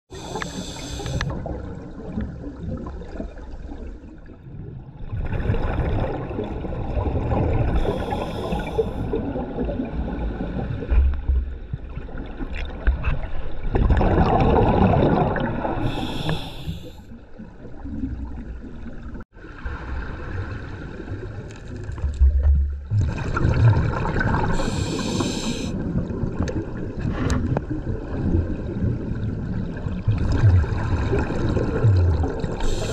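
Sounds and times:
regulator hiss: 0:00.1 - 0:01.3, 0:15.9 - 0:17.0, 0:24.6 - 0:25.7, 0:32.6 - 0:32.9
exhaled bubbles gurgling underwater: 0:00.1 - 0:32.9.

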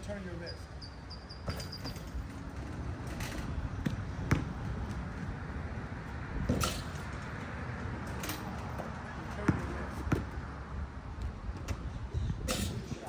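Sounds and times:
basketball bouncing: 0:03.8 - 0:05.3, 0:09.3 - 0:10.4.

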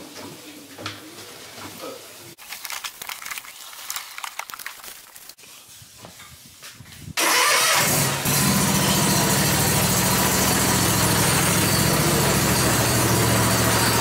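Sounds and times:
riding mower engine running: 0:07.2 - 0:14.0.

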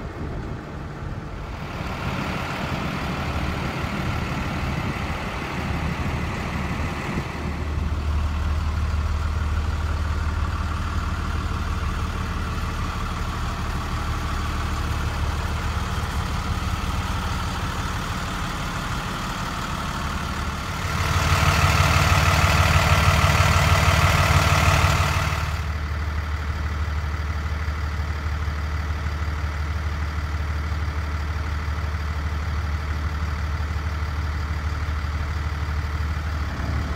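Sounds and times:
diesel engine idling: 0:00.0 - 0:36.9.

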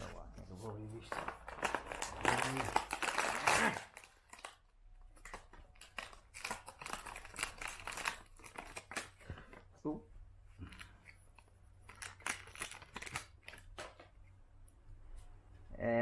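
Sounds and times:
plastic packaging crinkling: 0:00.6 - 0:09.7, 0:10.6 - 0:14.1.

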